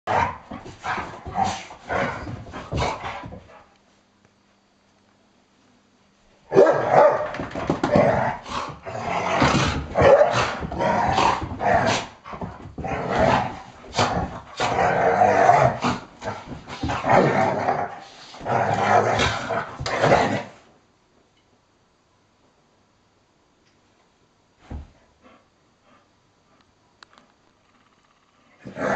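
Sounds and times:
dogs growling and barking: 0:00.1 - 0:03.6, 0:06.5 - 0:20.6, 0:28.6 - 0:28.9.

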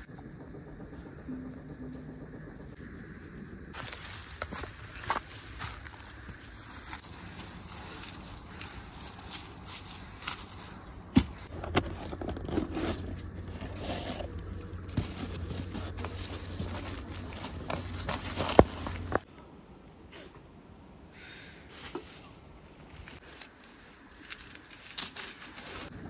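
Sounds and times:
quiet outdoor background: 0:00.0 - 0:26.0
rustling and scraping of gear: 0:03.7 - 0:19.3, 0:21.7 - 0:26.0
mat unrolled over dry leaves: 0:03.8 - 0:11.4, 0:14.9 - 0:19.2, 0:23.0 - 0:26.0.

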